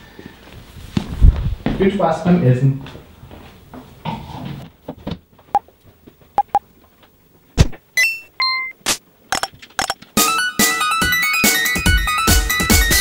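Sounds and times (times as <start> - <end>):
short high beeps: 6.4 - 6.6.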